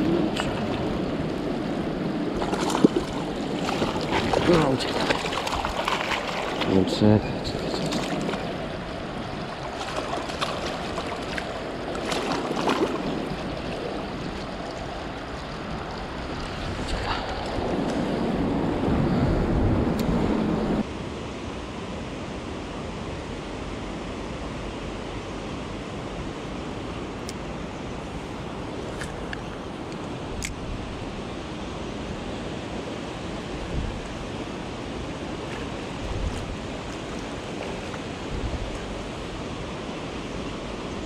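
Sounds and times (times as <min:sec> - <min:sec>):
river rushing over stones: 0:00.0 - 0:16.4
water splashes: 0:02.3 - 0:17.6, 0:35.0 - 0:40.2.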